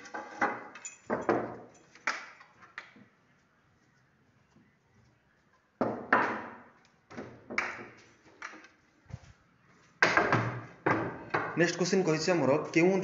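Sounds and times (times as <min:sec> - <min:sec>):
sharp knocks in a small room: 0:05.8 - 0:08.0, 0:10.0 - 0:11.6.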